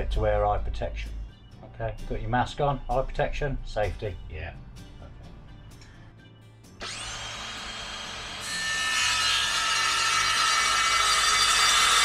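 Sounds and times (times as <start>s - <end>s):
circular saw cutting board: 6.8s - 12.0s.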